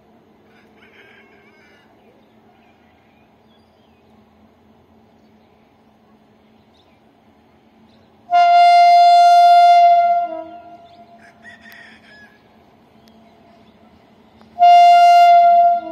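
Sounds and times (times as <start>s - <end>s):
locomotive air horn: 8.3s - 11.2s, 14.5s - 15.9s.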